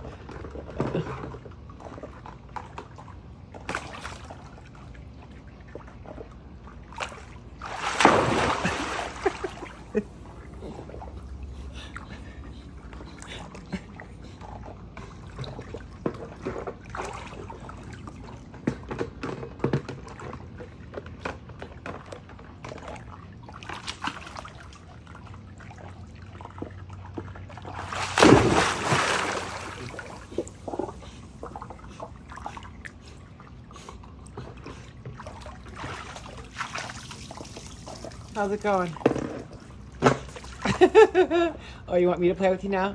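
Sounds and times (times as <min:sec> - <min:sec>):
pool water splashing: 0:00.0 - 0:42.9
loud splash: 0:07.6 - 0:09.7, 0:27.8 - 0:30.2.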